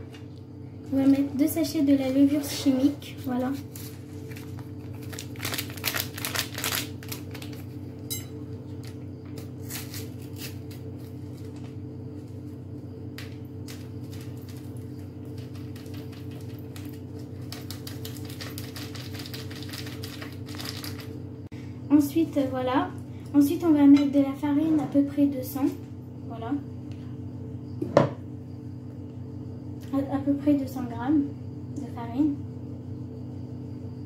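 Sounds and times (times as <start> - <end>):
steady low hum: 0.0 - 34.0
paper sachets crinkling: 3.6 - 7.8, 13.7 - 21.2.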